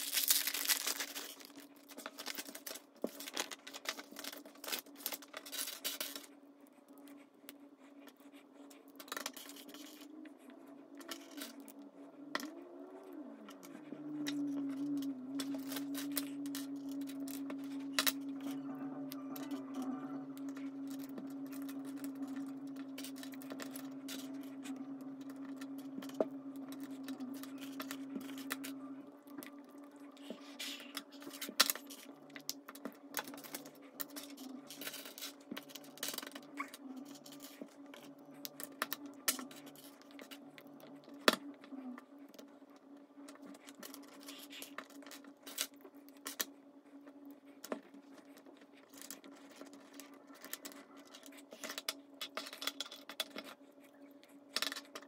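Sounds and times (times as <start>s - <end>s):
low hum: 0.0s - 55.0s.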